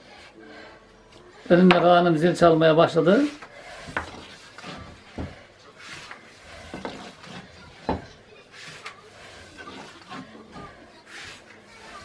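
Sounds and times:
rolling pin rubbing dough: 1.4s - 12.0s.

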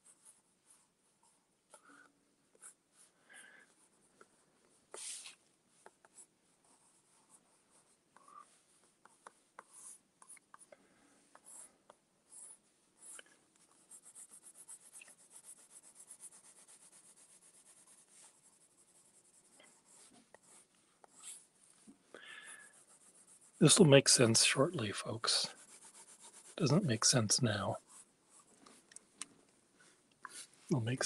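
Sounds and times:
pencil scratching on paper: 4.9s - 10.7s, 11.3s - 21.6s, 22.4s - 23.6s, 25.0s - 27.1s.

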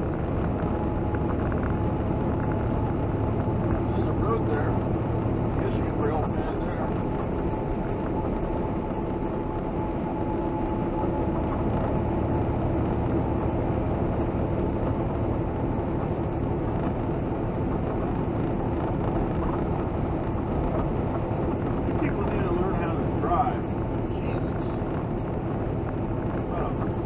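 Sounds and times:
faint steady whine: 0.0s - 27.0s
truck engine and road drone: 0.0s - 27.0s.

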